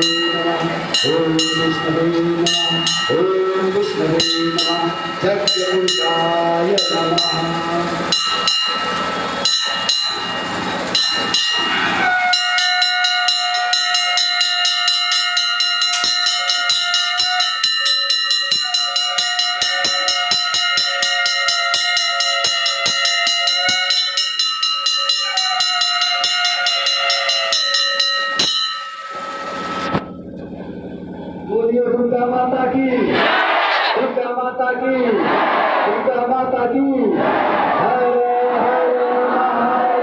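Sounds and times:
heavy drum beats: 0:00.0 - 0:30.2
bells ringing rapidly: 0:00.0 - 0:30.3
high steady tone: 0:00.0 - 0:31.6.

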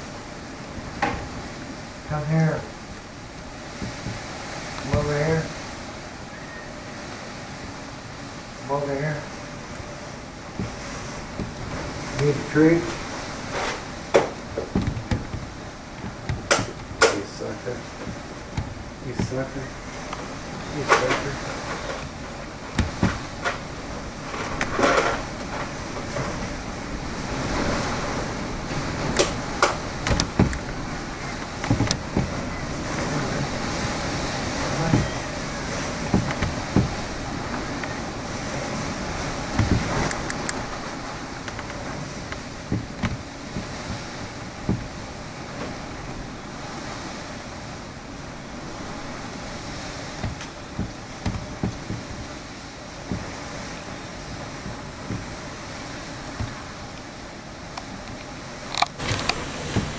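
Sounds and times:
hurricane wind gusting: 0:00.0 - 0:59.9
sharp pops and knocks: 0:03.7 - 0:05.1, 0:10.5 - 0:17.3, 0:17.9 - 0:26.3, 0:29.1 - 0:30.8, 0:31.4 - 0:32.5, 0:34.2 - 0:35.2, 0:35.8 - 0:38.0, 0:39.4 - 0:45.8, 0:50.1 - 0:52.4, 0:53.0 - 0:53.4, 0:54.2 - 0:55.4, 0:56.3 - 0:57.0.

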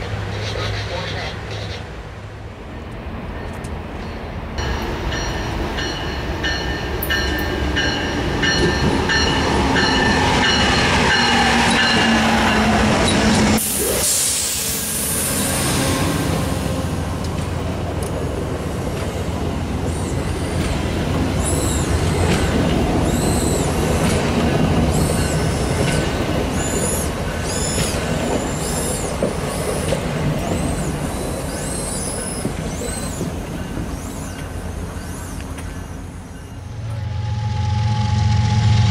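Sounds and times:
train coaches rumbling past: 0:00.0 - 0:38.9
approaching train tone: 0:02.7 - 0:17.6, 0:19.4 - 0:38.9
high wheel squeals: 0:24.9 - 0:36.7.

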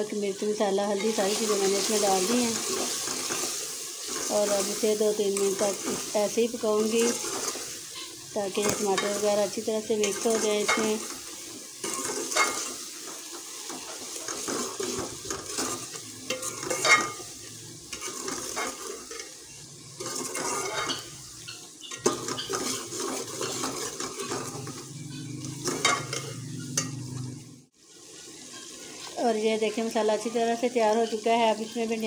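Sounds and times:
masala sizzling in a pot: 0:00.0 - 0:32.0
spoon scraping and clinking pot: 0:11.8 - 0:12.9, 0:13.7 - 0:19.4, 0:20.0 - 0:27.4, 0:28.2 - 0:29.1.

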